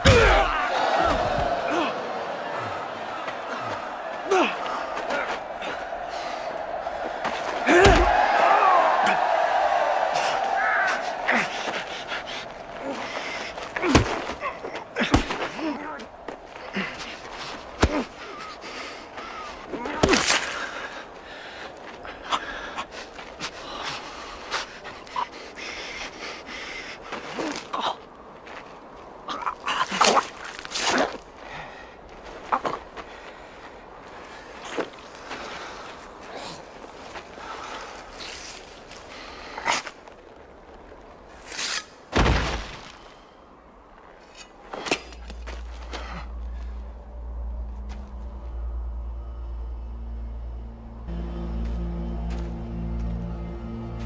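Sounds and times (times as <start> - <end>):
men panting and gasping: 0.0 - 8.3, 9.9 - 19.9, 20.5 - 27.8, 44.7 - 47.2.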